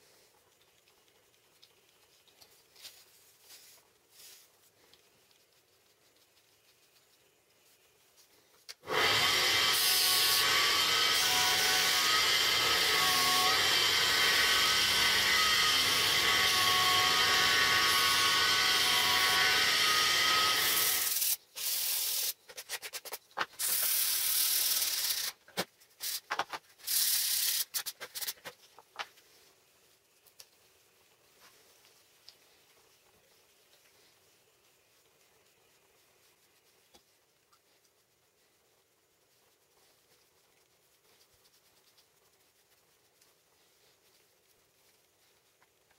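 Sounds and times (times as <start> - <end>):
disc sander grinding metal: 8.9 - 21.1.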